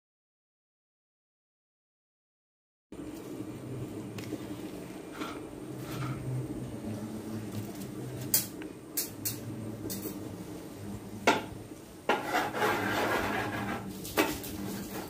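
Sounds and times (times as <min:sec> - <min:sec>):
steady low hum: 0:02.9 - 0:15.0
rasping scraping in pot: 0:12.1 - 0:15.0.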